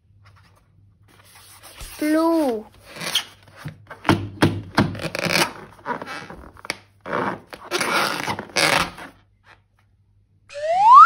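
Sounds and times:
crinkling and scraping handling: 4.8 - 10.0.

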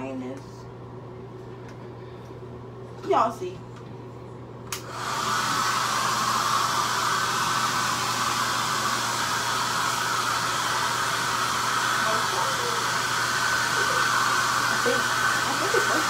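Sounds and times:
hair dryer blowing: 4.7 - 16.0.

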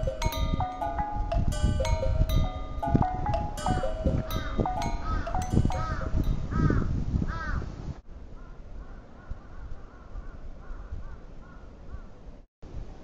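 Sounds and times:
wind noise rumble: 0.0 - 12.0
crows cawing: 4.4 - 7.6, 8.4 - 12.1.

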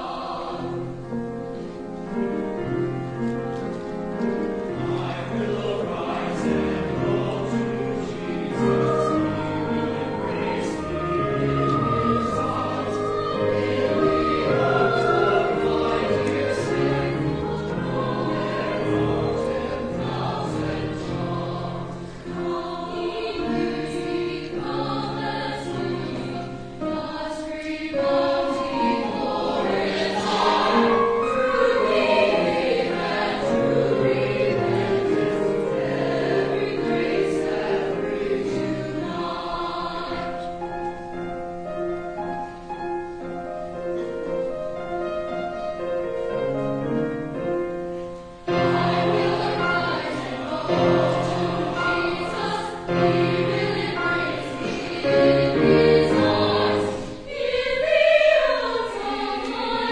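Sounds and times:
choir singing: 0.0 - 59.9.

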